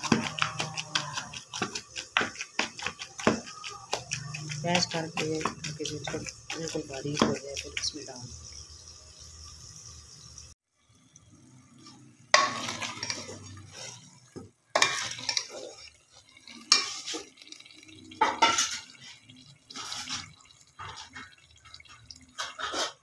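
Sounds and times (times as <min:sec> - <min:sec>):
spoon scraping a metal pot: 0:00.0 - 0:08.2, 0:12.4 - 0:17.4, 0:18.2 - 0:23.0.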